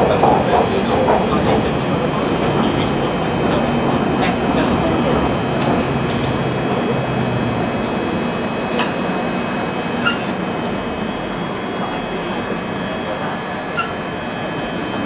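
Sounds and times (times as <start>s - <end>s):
train wheels on rail in tunnel: 0.0s - 15.0s
high wheel squeals: 7.4s - 15.0s.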